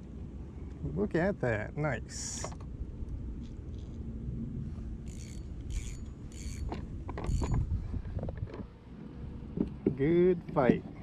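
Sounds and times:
wind rumble: 1.6 - 10.0
fishing reel whirring: 5.0 - 7.6.

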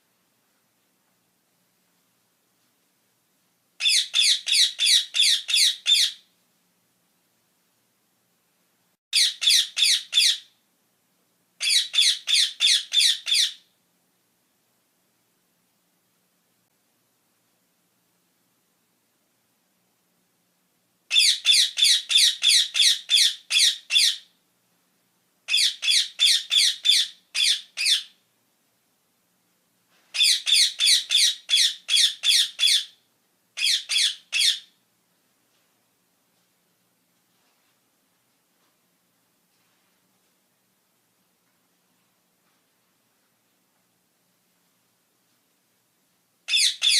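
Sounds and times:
parakeet screeching calls: 3.8 - 6.2, 9.2 - 10.5, 11.6 - 13.7, 21.1 - 24.3, 25.5 - 28.2, 30.2 - 33.0, 33.6 - 34.8, 46.5 - 46.9.

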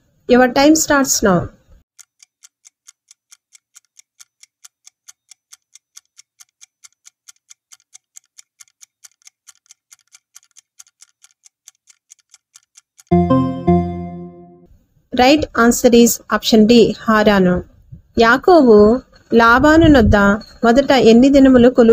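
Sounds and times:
clock ticking: 1.9 - 13.2.

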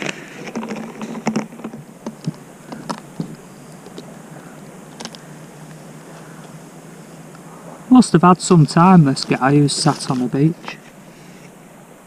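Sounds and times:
paper map crinkling: 9.1 - 10.8.

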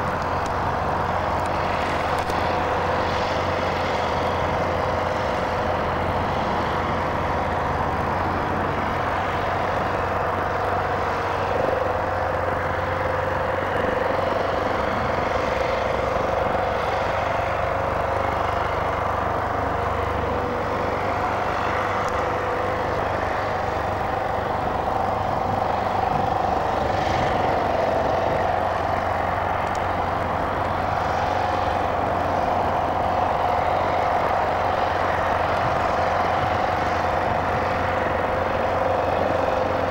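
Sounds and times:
airship engines droning: 0.0 - 39.9.

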